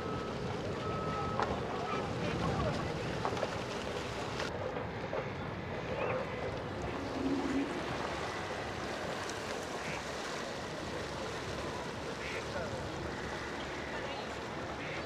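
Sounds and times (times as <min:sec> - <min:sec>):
rippling open water: 0:00.0 - 0:15.0.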